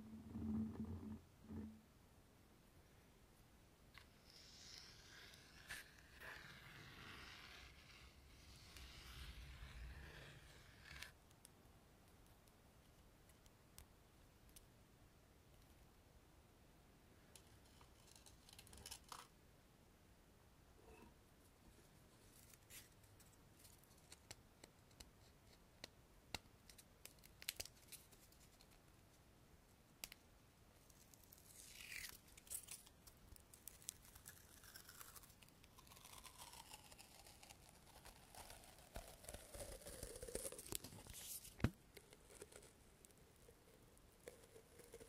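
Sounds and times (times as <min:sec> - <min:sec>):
scratching sliding sound: 0:04.0 - 0:11.2.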